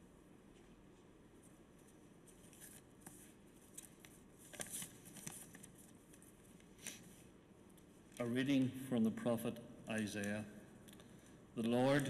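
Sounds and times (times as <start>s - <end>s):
papers rustling: 2.3s - 7.0s.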